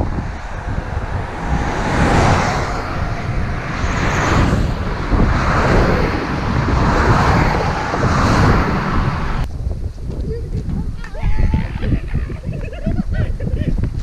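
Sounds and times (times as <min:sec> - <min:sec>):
cars passing close by: 0:00.0 - 0:09.5
wind rumbling on microphone: 0:00.0 - 0:14.0.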